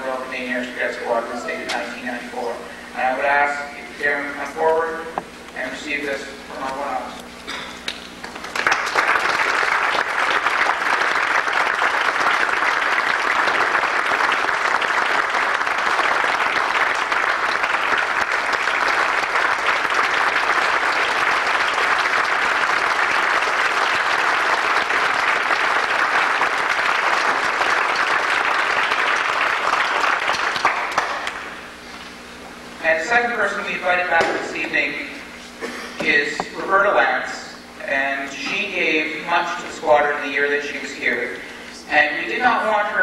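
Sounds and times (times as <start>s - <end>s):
audience applauding: 7.8s - 31.6s.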